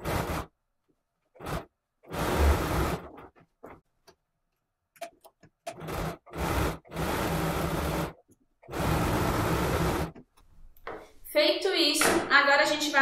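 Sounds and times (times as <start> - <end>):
sewing machine stitching: 0.0 - 0.6, 1.3 - 3.8, 5.0 - 10.2.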